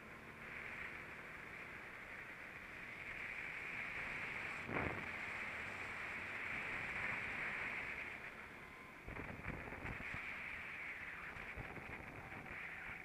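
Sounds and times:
muffled go-kart engine drone: 0:00.0 - 0:13.0.

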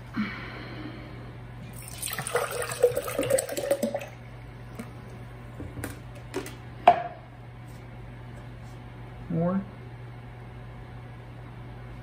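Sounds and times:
liquid pouring into glass jar: 0:01.7 - 0:04.2.

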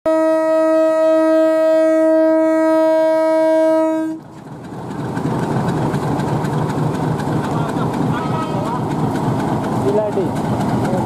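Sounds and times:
locomotive horn blast: 0:00.0 - 0:04.3, 0:08.1 - 0:08.8
train engine rumble: 0:00.1 - 0:11.0.

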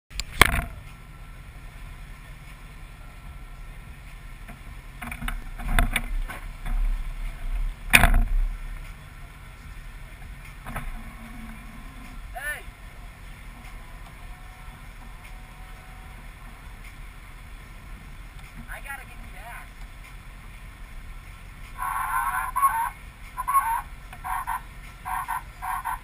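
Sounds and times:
pickup truck engine idling: 0:06.2 - 0:26.0.

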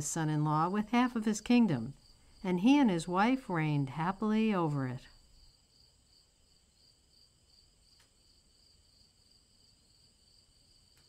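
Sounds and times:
crickets chirping: 0:00.0 - 0:11.0
faint click: 0:08.0 - 0:08.2.

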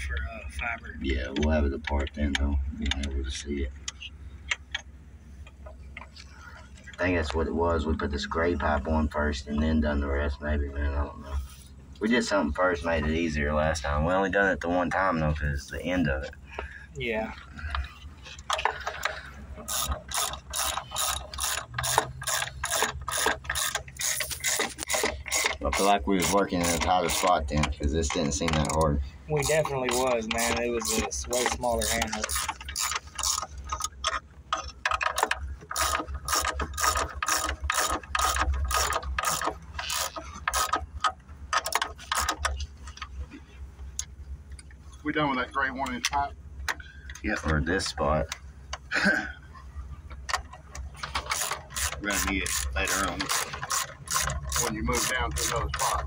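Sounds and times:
ratchet wrench clicking: 0:19.6 - 0:27.4, 0:29.4 - 0:34.2, 0:34.8 - 0:42.6, 0:51.0 - 0:56.0.

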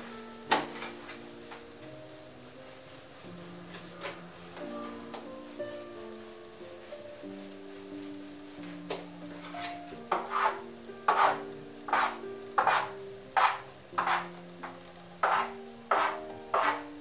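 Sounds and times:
soft background music: 0:00.0 - 0:17.0
bench scraper chopping dough: 0:10.2 - 0:14.3, 0:15.2 - 0:16.9.

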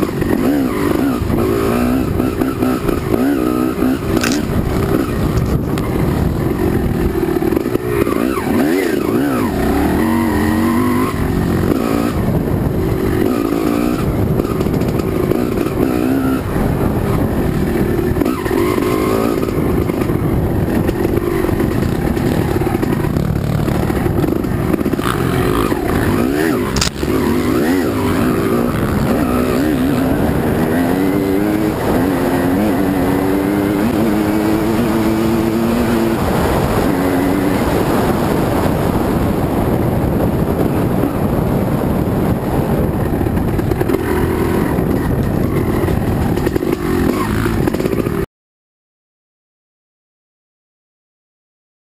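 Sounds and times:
dirt bike engine running hard: 0:00.0 - 0:48.3
sharp click: 0:04.2 - 0:04.5, 0:26.8 - 0:27.1.

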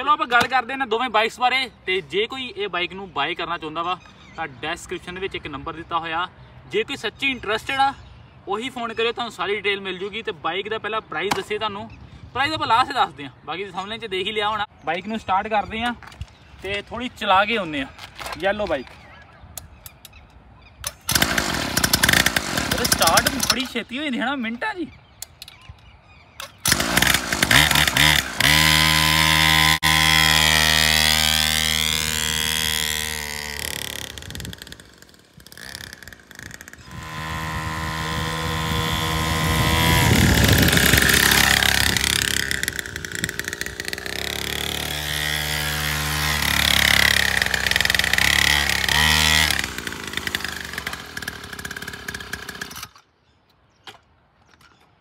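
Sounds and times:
two-stroke dirt bike engine revving: 0:21.1 - 0:23.7, 0:26.6 - 0:52.9.

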